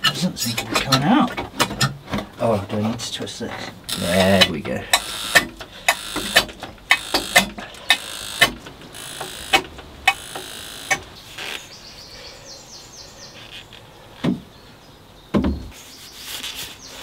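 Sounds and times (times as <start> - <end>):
hand pump clicking: 0.4 - 2.3, 3.8 - 11.6.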